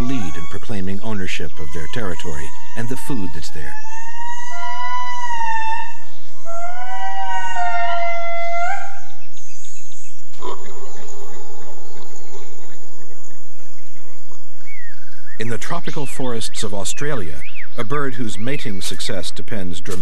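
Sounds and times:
high-pitched drone: 0.0s - 9.0s
lemurs wailing: 0.0s - 9.2s.

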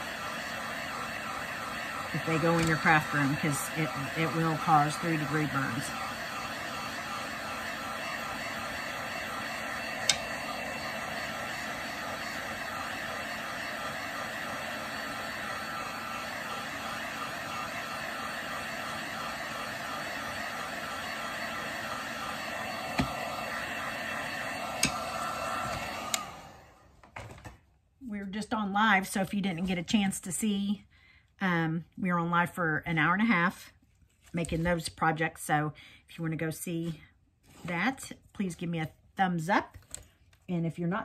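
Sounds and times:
heat gun blowing: 0.0s - 27.0s.

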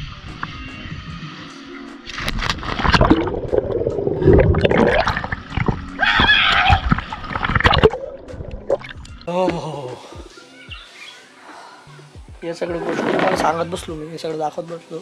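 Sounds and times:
gurgling water and bubbles: 2.0s - 9.6s.

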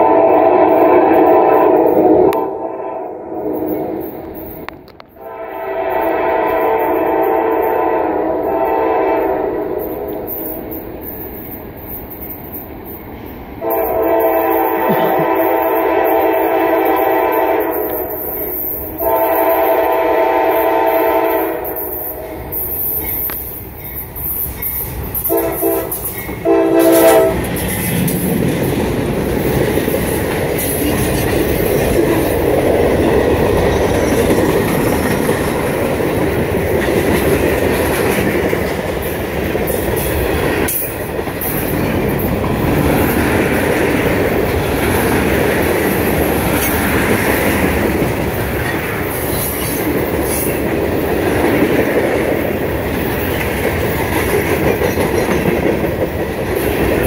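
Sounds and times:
train horn blasts: 0.0s - 4.1s, 5.2s - 10.5s, 13.6s - 18.3s, 19.0s - 22.6s, 25.2s - 27.5s
freight train rumbling past: 0.0s - 57.0s
wheels clattering on rails: 21.6s - 57.0s.

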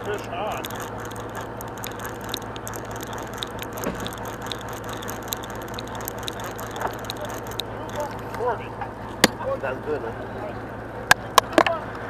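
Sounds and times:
fishing reel clicking: 0.0s - 8.4s
boat engine hum: 0.0s - 12.0s.

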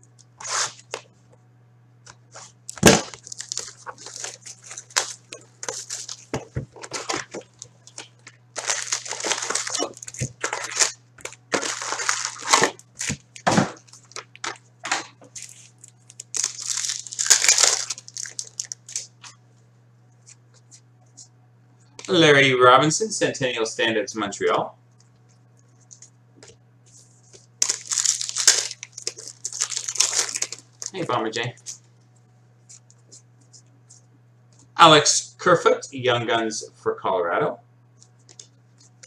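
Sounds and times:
foil wrappers crinkling and tearing: 2.3s - 14.7s, 15.3s - 19.4s, 26.9s - 31.9s.

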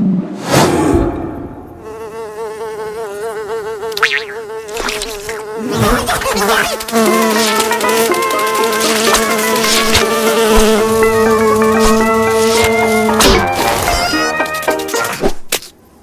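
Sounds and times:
cartoon fly buzzing: 1.8s - 15.3s
cartoon sound effects: 4.0s - 6.8s, 10.9s - 15.3s.

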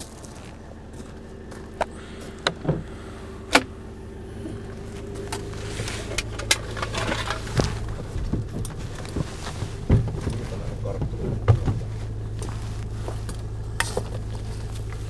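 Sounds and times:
steady low hum: 0.0s - 15.0s
gear knocking and clattering: 4.4s - 15.0s.

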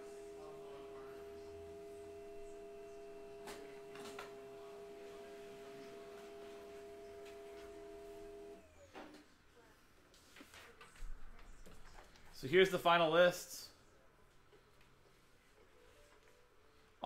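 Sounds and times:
printer humming: 0.0s - 9.0s.

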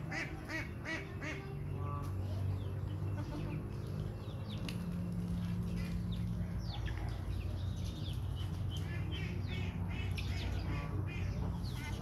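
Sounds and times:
young mynas chirping and squawking: 5.4s - 12.0s.

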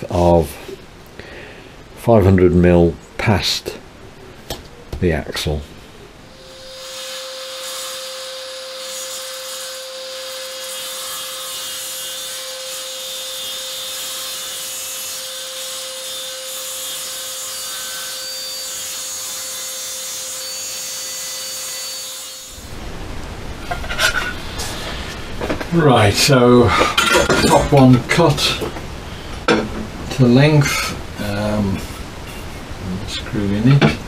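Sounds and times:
electric saw cutting: 6.3s - 22.8s.

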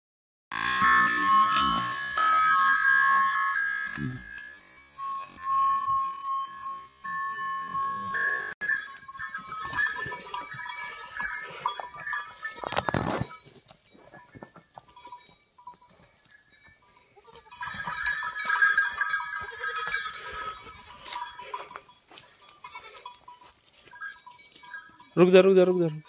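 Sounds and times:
cattle bells clanking: 0.5s - 26.0s.

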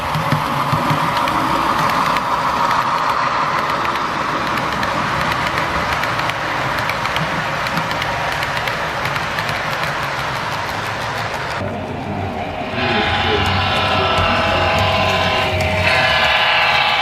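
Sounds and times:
wheels clicking over rail joints: 0.0s - 11.8s
model train running hum: 0.0s - 17.0s.

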